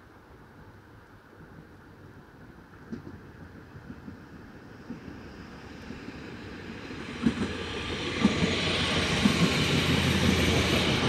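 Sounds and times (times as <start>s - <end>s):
electric train passing: 4.2s - 11.0s.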